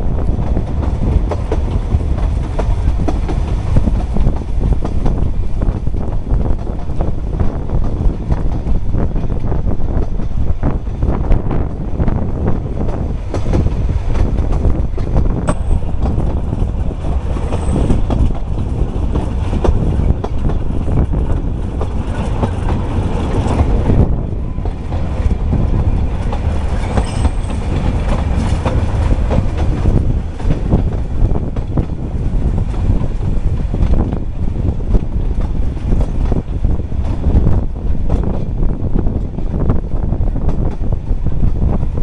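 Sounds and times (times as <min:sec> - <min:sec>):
train carriage rumble: 0:00.0 - 0:42.0
wheels clicking over rail joints: 0:00.2 - 0:11.9, 0:12.5 - 0:39.6
faint high squeaks: 0:26.8 - 0:27.6.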